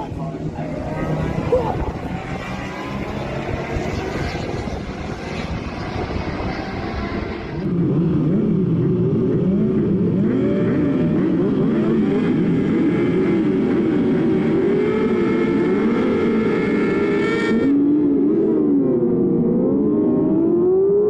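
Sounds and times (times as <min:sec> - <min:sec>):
motorcycle engines revving: 0:00.0 - 0:21.0.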